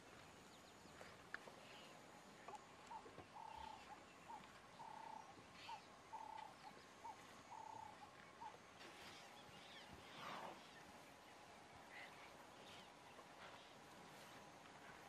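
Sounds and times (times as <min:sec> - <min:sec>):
faint high bird chirps: 0:00.5 - 0:10.9.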